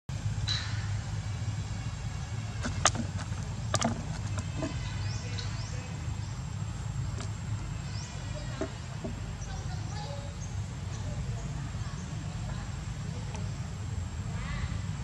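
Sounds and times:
steady low hum: 0:00.1 - 0:15.0
plastic bottle crackling: 0:02.6 - 0:04.8.

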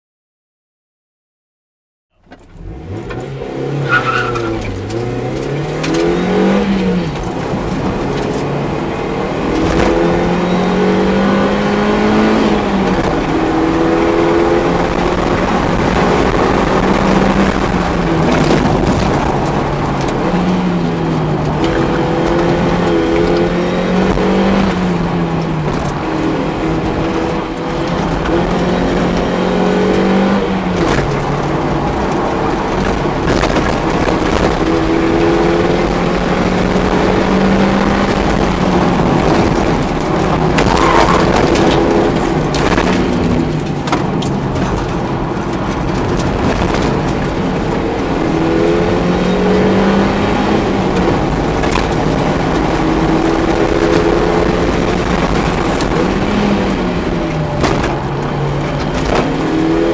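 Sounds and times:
car engine revving from cabin: 0:02.1 - 0:18.8, 0:19.4 - 0:33.1.

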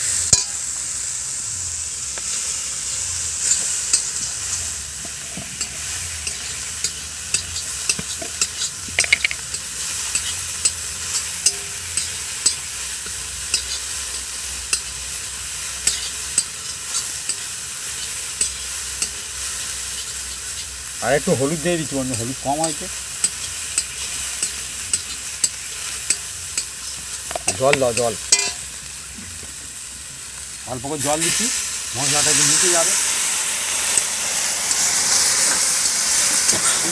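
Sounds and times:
food sizzling in oil: 0:00.0 - 0:36.9
metal spatula scraping pan: 0:15.8 - 0:19.2, 0:22.6 - 0:28.7.

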